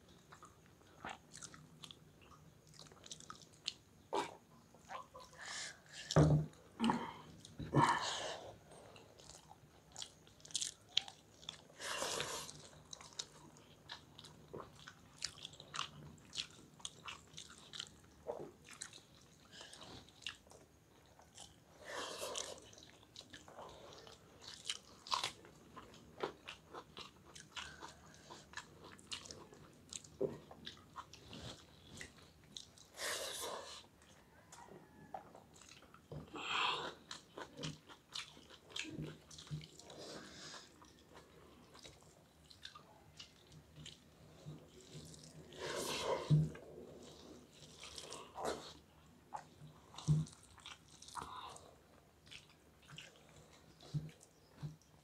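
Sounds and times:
wet mouth chewing: 36.9s - 54.9s.

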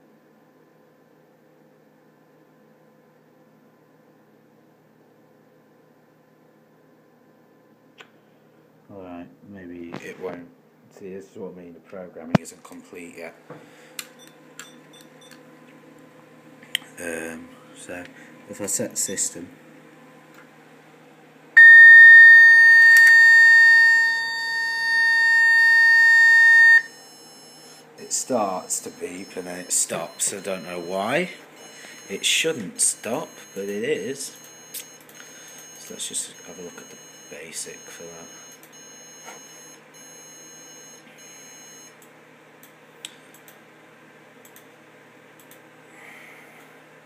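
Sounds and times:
high-pitched alarm beep: 21.6s - 41.9s.

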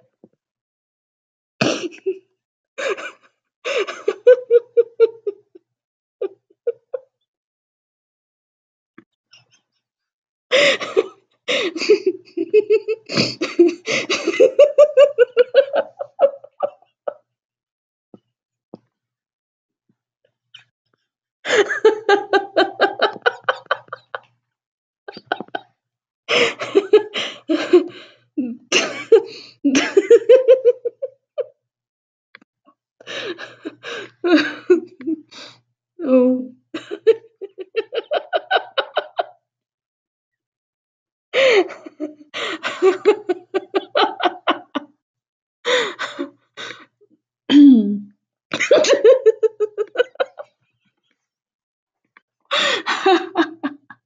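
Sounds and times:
woman laughing: 1.7s - 2.2s, 2.8s - 5.5s, 6.2s - 7.0s, 10.5s - 17.2s, 21.5s - 24.2s, 25.1s - 25.6s, 26.3s - 31.5s, 33.1s - 35.3s, 36.0s - 39.3s, 41.4s - 44.8s, 47.5s - 50.5s, 52.5s - 54.0s.

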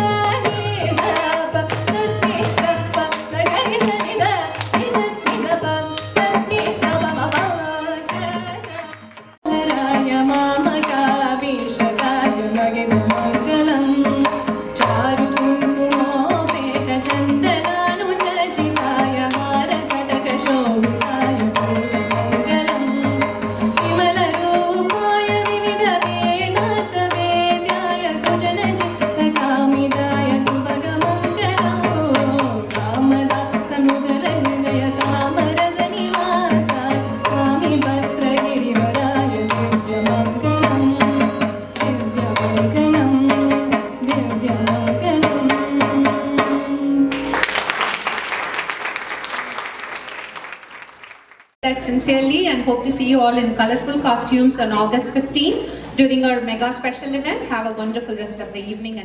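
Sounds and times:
woman singing: 0.0s - 47.2s
violin: 0.0s - 47.4s
hand drum playing: 0.0s - 47.5s
audience applause: 47.1s - 51.6s.

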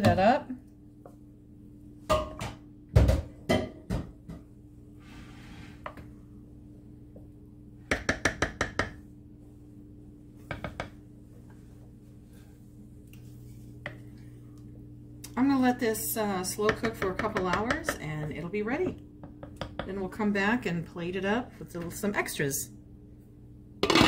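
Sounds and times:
wooden spoon knocking on crock: 7.9s - 9.0s, 10.4s - 11.0s, 16.6s - 18.0s.

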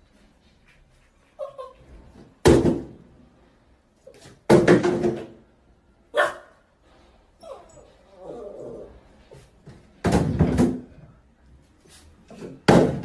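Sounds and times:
puppy whining: 1.3s - 2.0s, 7.4s - 9.3s.

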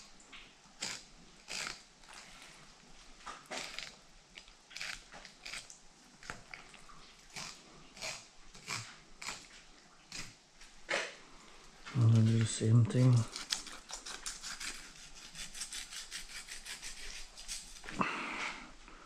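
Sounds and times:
knife cutting fish flesh: 13.0s - 17.9s.

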